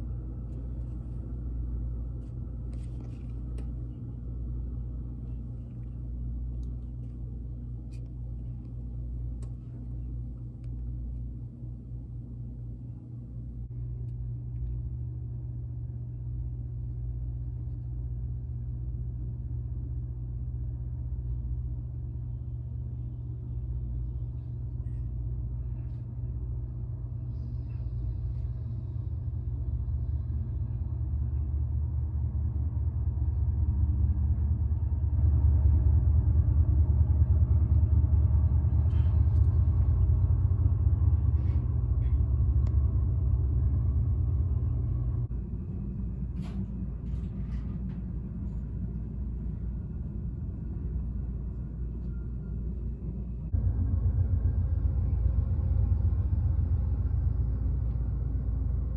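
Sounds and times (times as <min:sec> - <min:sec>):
passenger train rumble through window: 0:00.0 - 0:58.9
diesel freight train rumble: 0:27.5 - 0:58.9.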